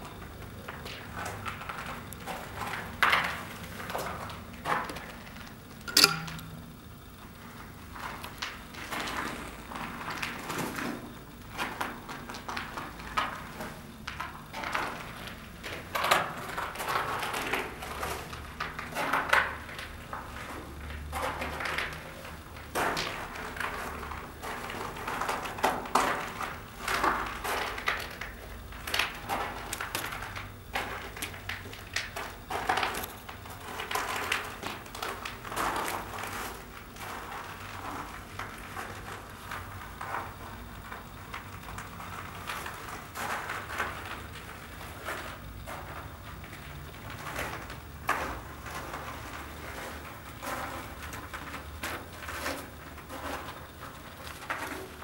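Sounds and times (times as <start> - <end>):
low steady hum: 0.0 - 14.9.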